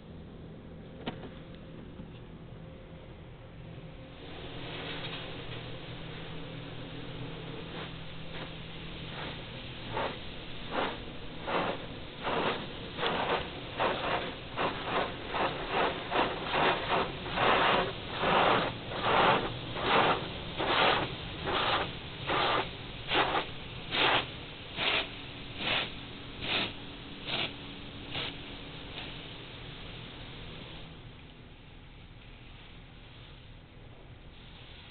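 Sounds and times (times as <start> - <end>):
water jets swishing on a car: 4.2 - 29.5.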